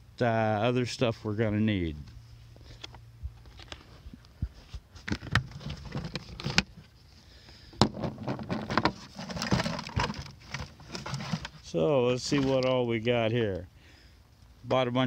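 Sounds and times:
plastic rattling and rustling: 0:05.0 - 0:06.9, 0:07.8 - 0:12.7.

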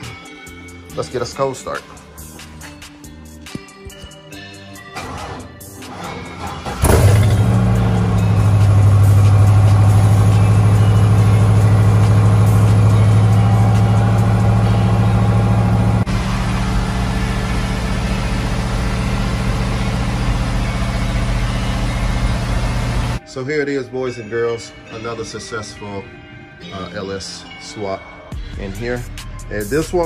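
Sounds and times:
engine starting and idling: 0:04.9 - 0:23.2.

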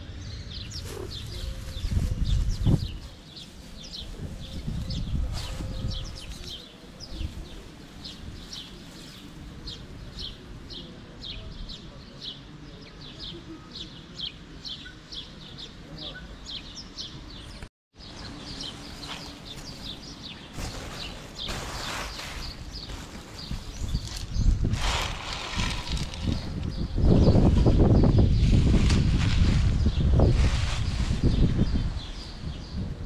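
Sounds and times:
rustle: 0:00.5 - 0:11.4, 0:18.0 - 0:32.8.

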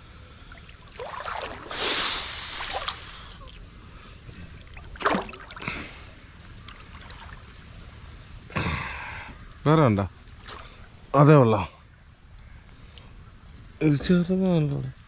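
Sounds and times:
water splashing: 0:00.5 - 0:08.1.

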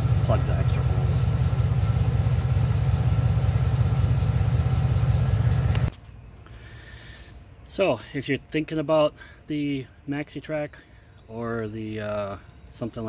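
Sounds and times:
air compressor running: 0:00.0 - 0:05.9.

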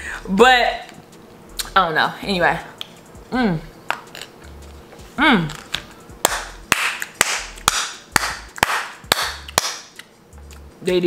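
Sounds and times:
woman humming mmm: 0:05.2 - 0:05.6
hand claps: 0:06.2 - 0:10.1.

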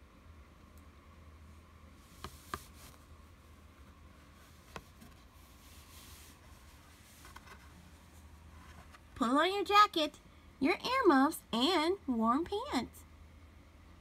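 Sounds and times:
low steady hum: 0:00.0 - 0:14.0
cardboard page clicks and taps: 0:02.2 - 0:02.8.

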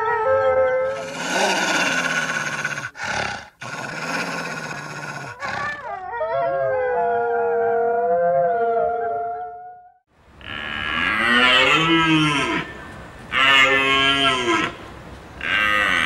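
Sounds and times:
wolves howling: 0:05.3 - 0:09.6.

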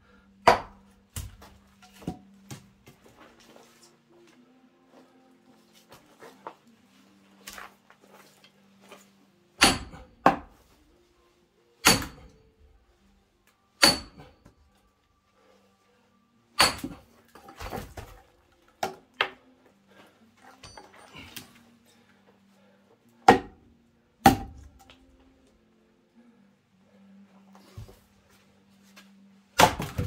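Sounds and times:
axe chopping wood: 0:00.4 - 0:02.7, 0:09.6 - 0:10.6, 0:11.8 - 0:12.4, 0:13.8 - 0:14.3, 0:16.6 - 0:19.4, 0:23.2 - 0:23.6, 0:24.2 - 0:24.8, 0:29.6 - 0:30.0.

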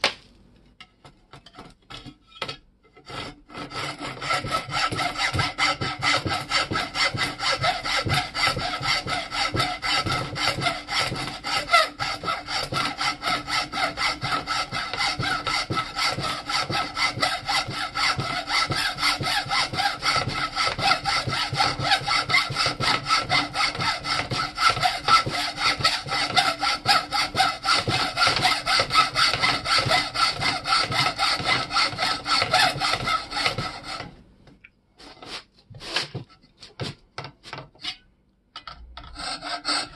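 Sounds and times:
hand hacksaw cutting wood: 0:03.0 - 0:34.1, 0:35.0 - 0:38.0, 0:39.0 - 0:39.9.

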